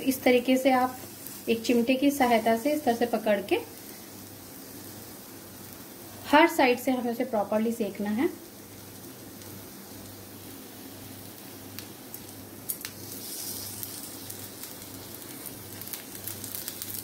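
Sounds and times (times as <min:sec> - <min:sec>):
oil sizzling in a pan: 0:00.0 - 0:17.0.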